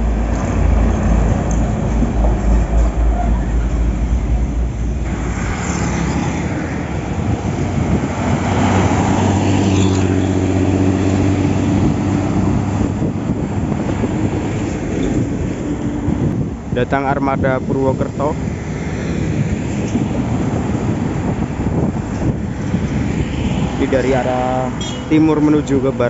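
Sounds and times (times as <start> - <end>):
bus diesel engine droning: 0.0 - 5.5.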